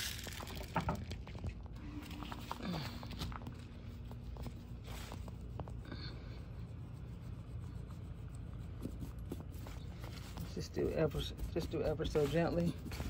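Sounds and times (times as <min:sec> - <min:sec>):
garden tool scraping soil: 0:08.8 - 0:13.0.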